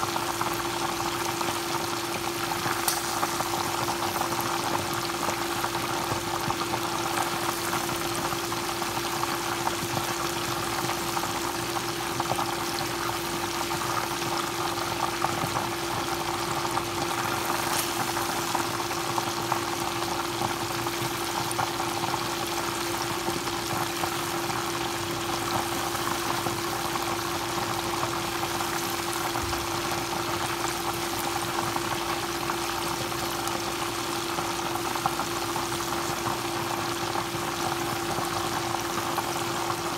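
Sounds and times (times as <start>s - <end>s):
chicken sizzling in hot oil: 0.0s - 39.9s.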